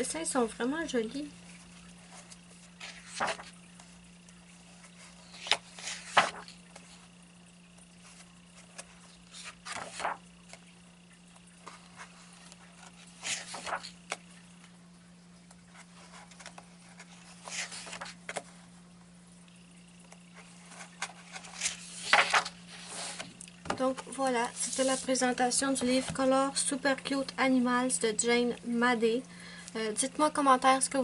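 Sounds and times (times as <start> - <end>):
faint electrical hum: 0.0 - 31.0
book pages turning: 1.5 - 7.1, 7.9 - 14.3, 15.4 - 18.6, 20.0 - 25.2.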